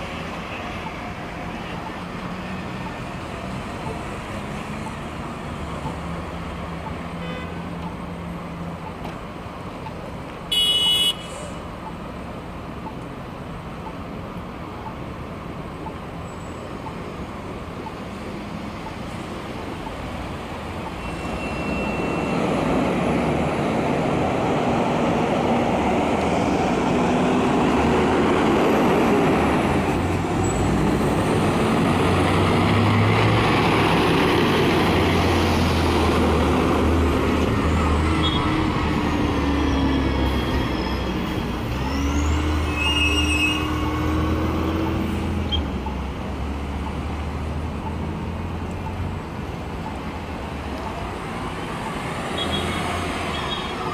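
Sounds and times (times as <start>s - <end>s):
cars driving past: 13.8s - 53.9s.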